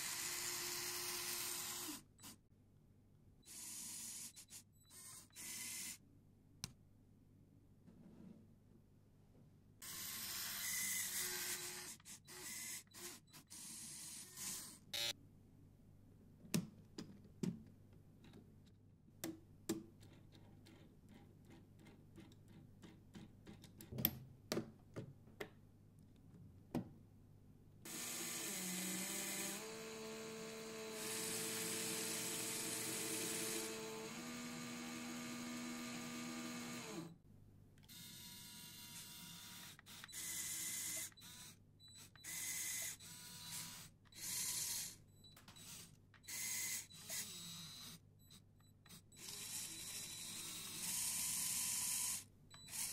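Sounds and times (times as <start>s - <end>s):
small electric motor whining: 27.9s - 37.1s, 45.6s - 48.0s, 48.9s - 52.9s.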